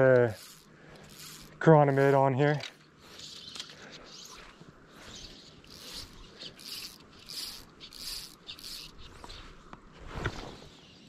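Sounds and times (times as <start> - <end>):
fly line hissing: 0.3 - 2.1, 3.0 - 9.5.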